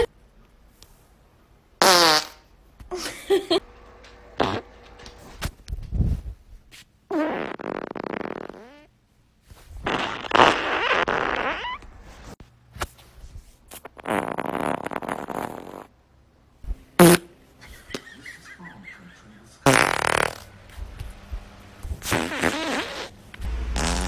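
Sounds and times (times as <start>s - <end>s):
long wavering farts: 7.1s - 8.9s, 9.8s - 11.8s, 13.9s - 15.9s, 19.7s - 20.5s, 22.0s - 23.1s, 23.8s - 24.0s.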